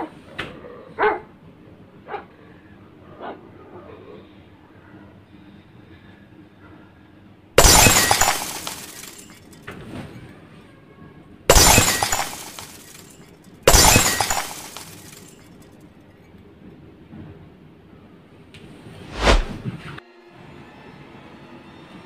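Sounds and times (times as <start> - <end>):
glass shattering: 7.6 - 9.6, 11.5 - 15.4.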